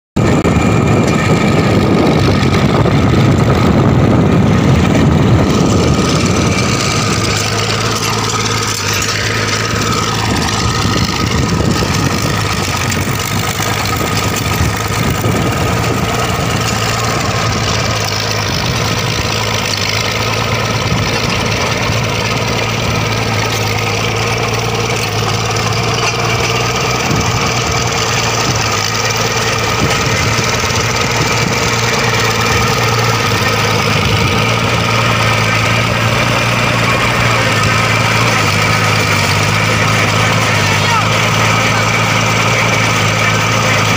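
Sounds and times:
trenching machine engine droning: 0.2 - 43.9.

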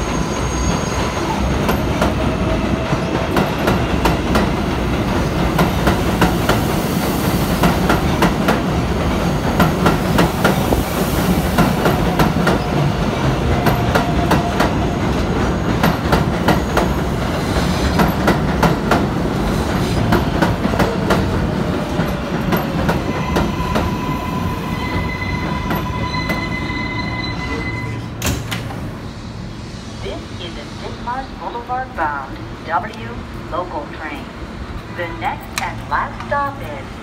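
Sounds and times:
train wheels clacking on rails: 0.0 - 26.7.

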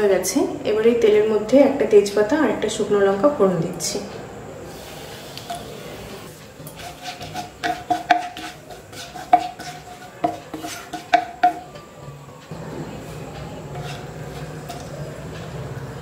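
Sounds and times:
wooden spatula knocking on a pan: 7.3 - 11.7.

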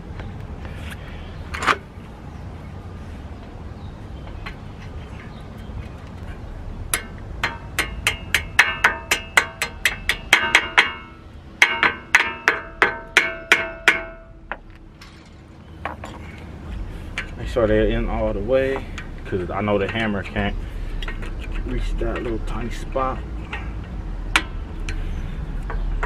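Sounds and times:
hammer striking metal pins: 6.9 - 15.2.

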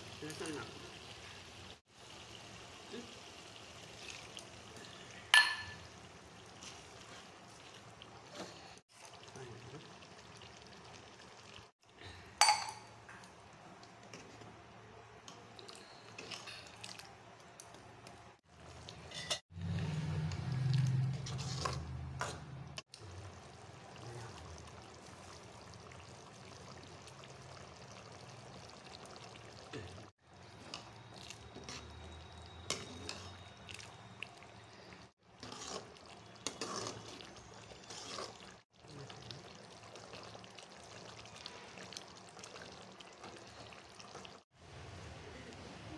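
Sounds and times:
ladle scraping and clinking on pan: 19.0 - 19.4.

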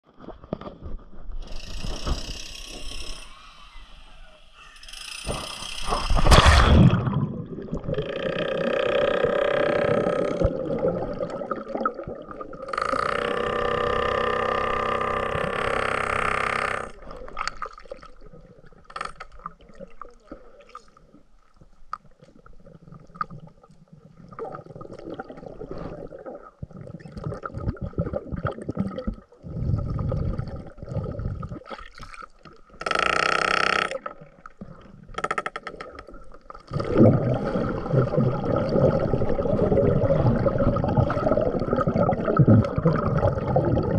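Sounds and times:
underwater gurgling and bubbles: 4.8 - 43.9.

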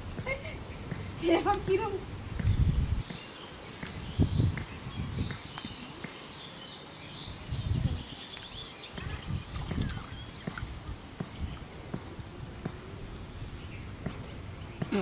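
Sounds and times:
low rumbles and thumps: 0.0 - 3.2
faint bird chirps: 2.4 - 12.0.

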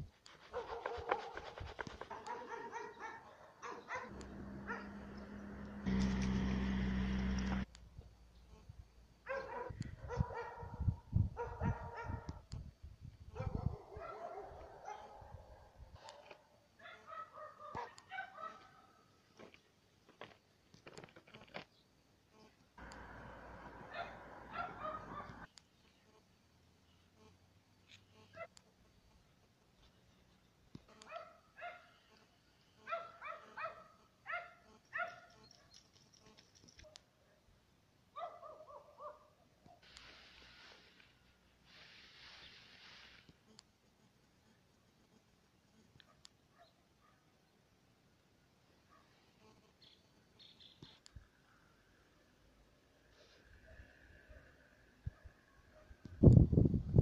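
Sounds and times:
dog barking: 0.5 - 1.4, 2.1 - 5.6, 9.2 - 12.4, 13.3 - 19.0, 23.9 - 25.5, 31.1 - 32.0, 32.8 - 35.3, 38.2 - 39.8, 46.1 - 47.3, 48.9 - 49.2, 55.1 - 56.0
loud steady hum: 4.1 - 7.7.

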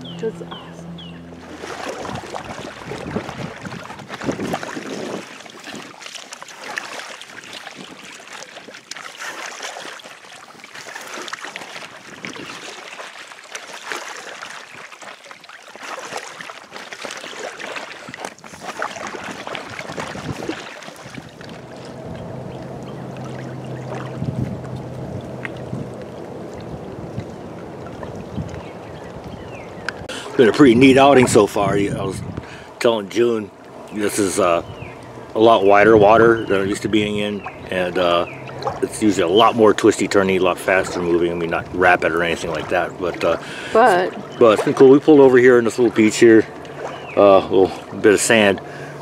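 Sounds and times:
steady low hum: 0.0 - 4.0, 21.2 - 44.8
wind on microphone: 0.0 - 6.0, 18.1 - 32.6, 34.6 - 37.7
paddles splashing: 0.0 - 49.0
water lapping around kayak: 0.0 - 49.0.

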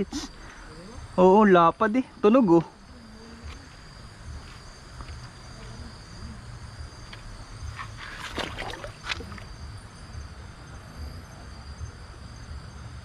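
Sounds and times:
crickets trilling: 0.0 - 13.0
crackling and splashing: 7.9 - 9.5.

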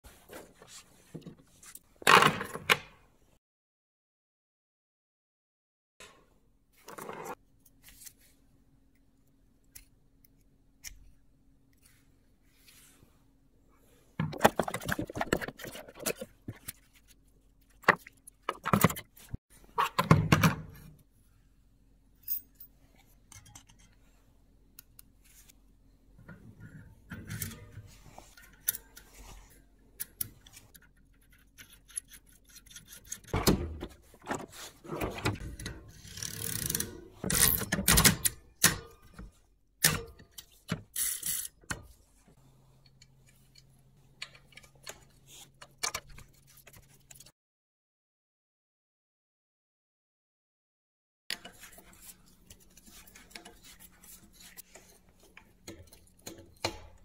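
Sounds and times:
clicks and rattles of bike parts: 51.3 - 57.0.

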